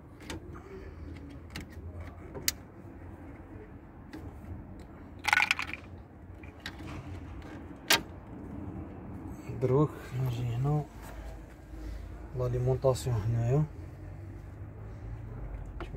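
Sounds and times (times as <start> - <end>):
fuel-line connectors clicking and rattling: 0.0 - 2.7, 4.1 - 8.2.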